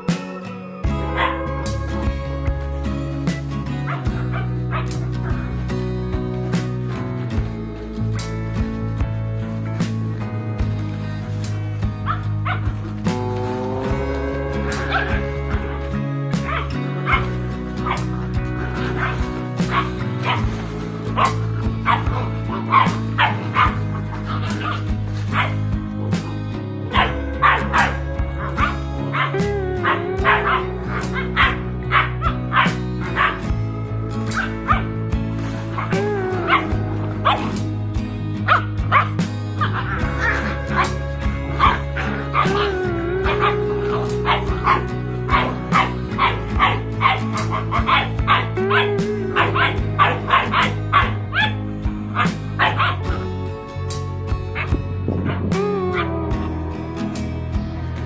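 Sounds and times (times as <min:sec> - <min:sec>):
background music: 0:00.0 - 0:58.0
puppies yipping and barking: 0:01.0 - 0:02.1, 0:03.4 - 0:05.7, 0:12.0 - 0:13.1, 0:13.9 - 0:26.3, 0:26.9 - 0:33.6, 0:34.2 - 0:53.2.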